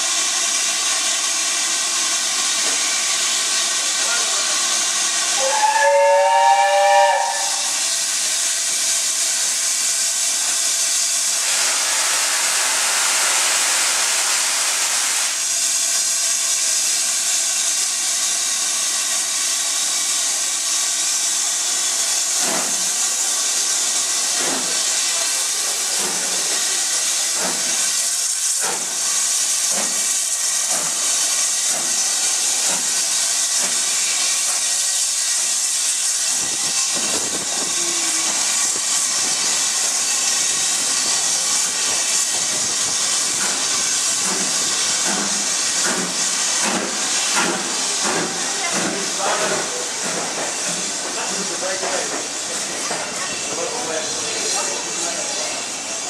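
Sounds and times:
rush of steam: 0.0s - 56.0s
steam locomotive hissing steam: 0.0s - 56.0s
steam whistle blast: 5.4s - 7.8s.

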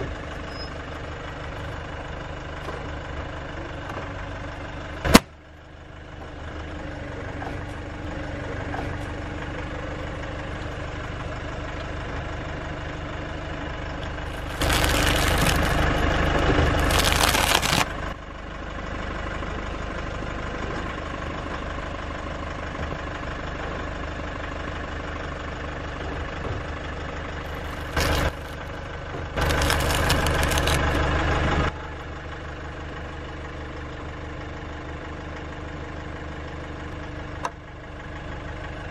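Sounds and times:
car engine idling: 0.0s - 38.9s.

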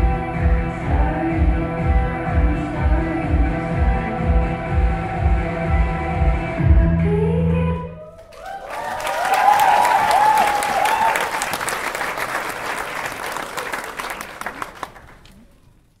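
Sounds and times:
high whoops: 8.1s - 11.7s
audience applauding: 8.2s - 15.7s.

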